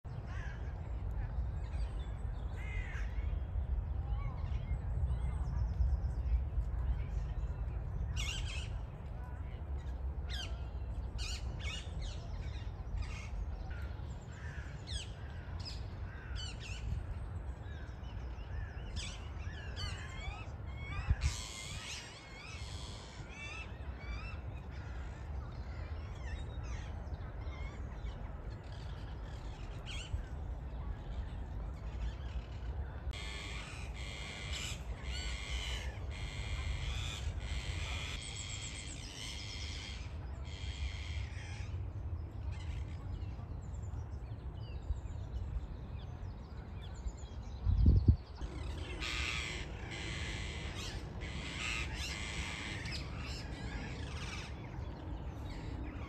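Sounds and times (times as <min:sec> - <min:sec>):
parakeets screeching: 0:48.4 - 0:54.6.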